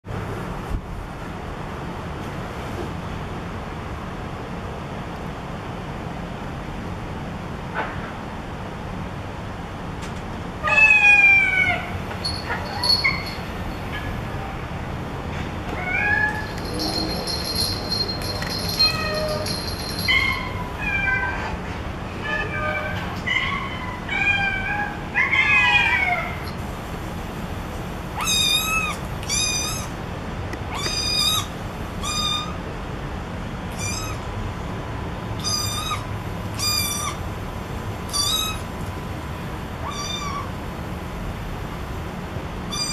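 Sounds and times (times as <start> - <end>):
cat meows through phone speaker: 39.8 - 40.5.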